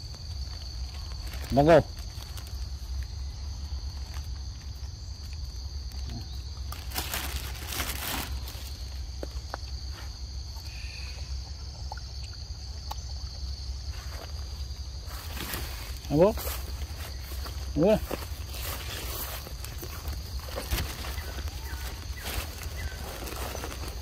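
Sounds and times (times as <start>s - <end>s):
insects droning: 0.0s - 24.0s
rustling: 6.7s - 8.9s, 15.1s - 24.0s.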